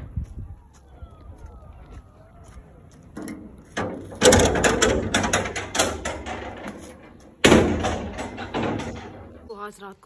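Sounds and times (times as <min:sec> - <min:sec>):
iron gate rattling and clanking: 0:03.1 - 0:09.6.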